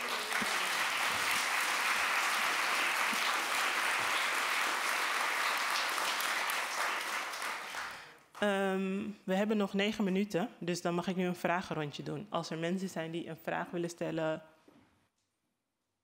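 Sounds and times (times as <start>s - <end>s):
audience applauding: 0.0s - 8.2s.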